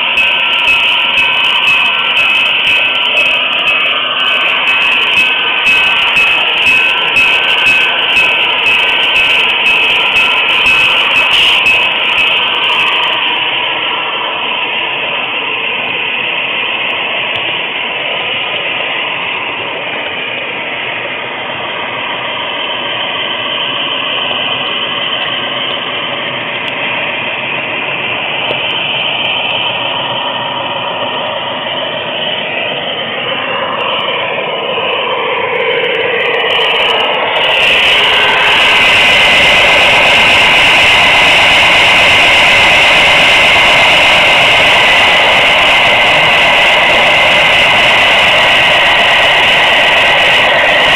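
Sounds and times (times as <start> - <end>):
model train wheels rattling on rail: 0.0 - 41.4
whines sliding in pitch: 0.0 - 50.9.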